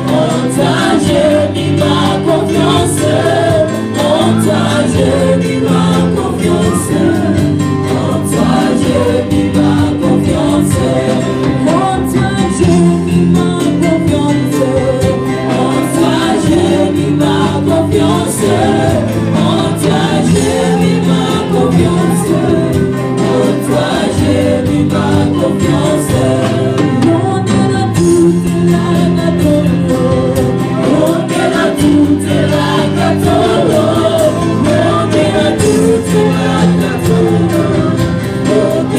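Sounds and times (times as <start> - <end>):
choir singing gospel: 0.0 - 38.9
electric keyboard: 0.0 - 38.9.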